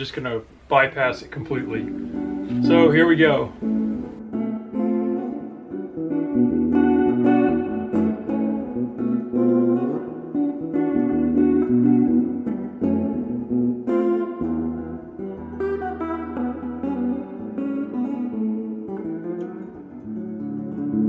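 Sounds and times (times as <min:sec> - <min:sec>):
bass notes: 0:00.0 - 0:04.4
plucked guitar music: 0:00.0 - 0:21.0.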